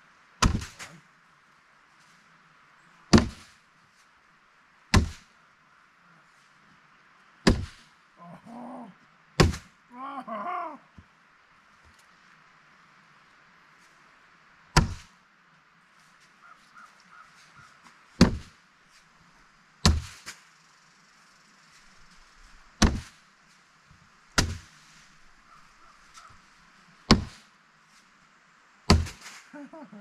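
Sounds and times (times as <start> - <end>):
bean bags thudding on wooden boards: 3.1 - 3.5, 4.9 - 5.2, 7.5 - 7.8, 9.4 - 9.7, 14.8 - 15.1, 18.2 - 18.6, 19.8 - 20.3, 22.8 - 23.2, 24.4 - 24.7, 27.1 - 27.4, 28.9 - 29.3.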